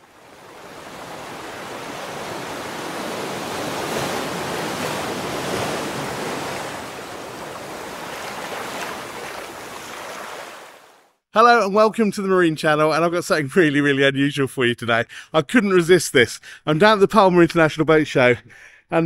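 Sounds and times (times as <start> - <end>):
ocean surf rushing: 0.0 - 10.9.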